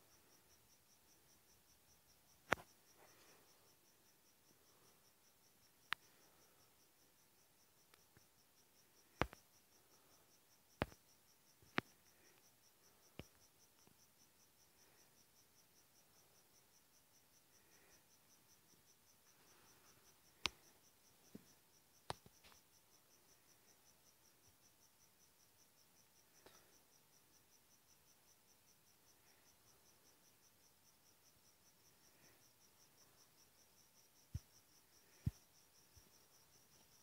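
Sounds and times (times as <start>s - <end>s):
cricket chirping: 0.0s - 37.0s
sharp clicks: 10.8s - 11.0s.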